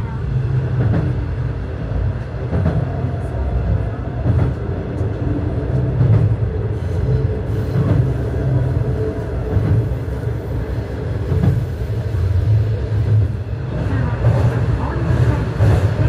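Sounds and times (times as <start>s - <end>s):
train engine and wheels rumbling: 0.0s - 16.0s
track clacks: 0.6s - 6.5s, 11.1s - 16.0s.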